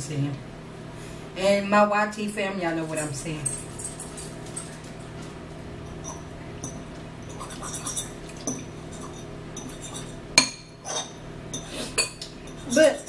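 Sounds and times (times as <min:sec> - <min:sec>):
forks clinking against bowls: 0:02.8 - 0:05.2, 0:05.8 - 0:13.0.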